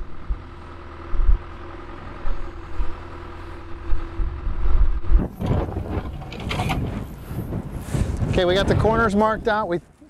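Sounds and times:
engine idling: 0.0s - 7.8s
low thumps: 3.8s - 9.1s
sudden loud noise: 5.2s - 8.8s.

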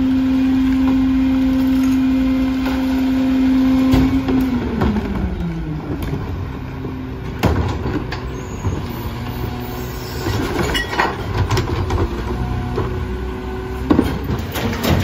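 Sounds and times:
garbage truck running: 0.0s - 15.0s
hydraulic cart tipper lifting: 7.2s - 15.0s
recyclables clattering: 13.9s - 15.0s.

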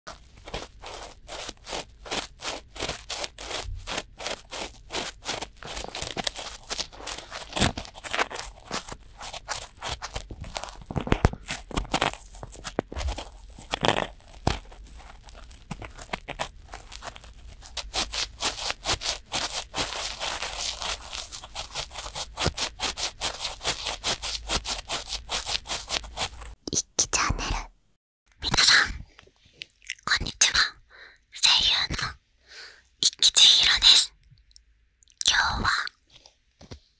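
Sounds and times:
cotton swabs scratching microphone: 0.1s - 27.0s.

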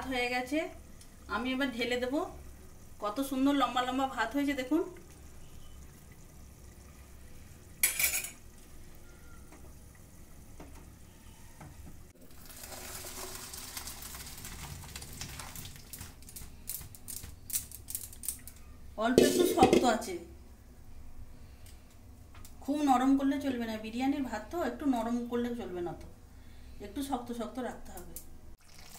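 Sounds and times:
kitchenware clattering: 7.8s - 8.4s, 19.1s - 20.1s
water and rice splashing into colander: 12.2s - 17.2s, 28.6s - 28.9s
rice clicking in colander: 12.2s - 18.6s.

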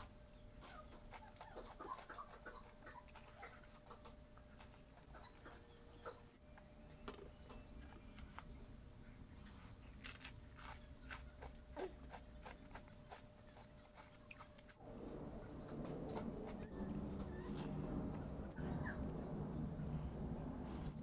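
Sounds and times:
person chewing food: 7.3s - 19.2s.

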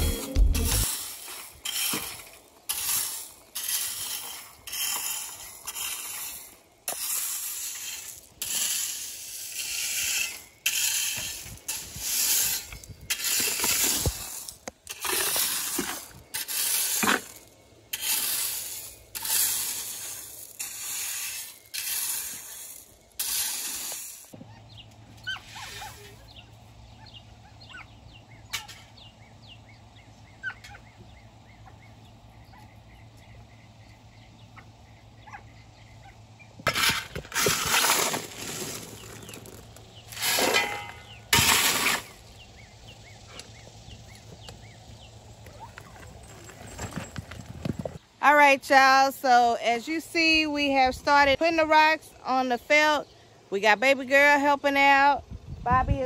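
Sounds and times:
rake scraping gravel: 0.0s - 24.4s, 25.1s - 26.6s, 36.6s - 48.0s.

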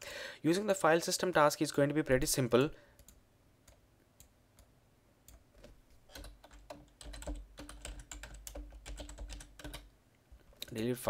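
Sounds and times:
typing on computer keyboard: 5.3s - 9.9s.

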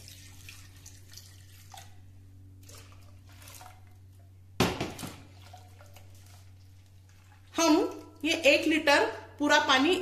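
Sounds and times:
water pouring into a pot: 0.0s - 2.0s, 2.6s - 4.0s, 5.0s - 8.2s.

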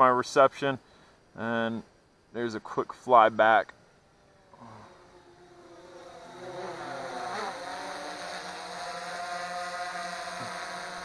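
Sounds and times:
drone propellers whirring: 3.8s - 11.0s.

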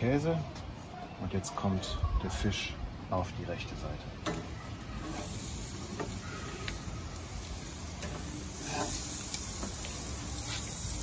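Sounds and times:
fish sizzling on a grill: 4.3s - 11.0s.

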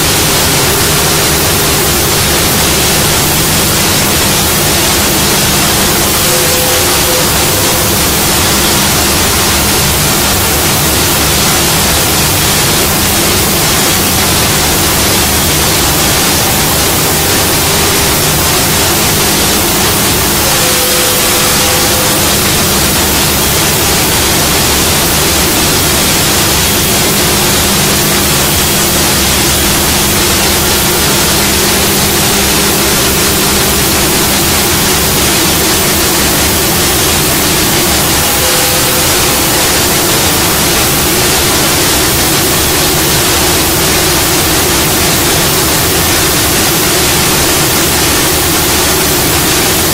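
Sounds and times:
cnc router rushing noise: 0.0s - 49.9s
faint hum: 0.0s - 49.9s
brief higher tone: 20.4s - 23.0s.

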